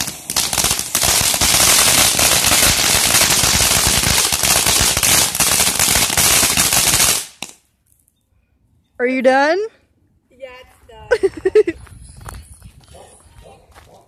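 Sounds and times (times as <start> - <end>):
firework fountain crackling hiss: 0.0 - 7.5.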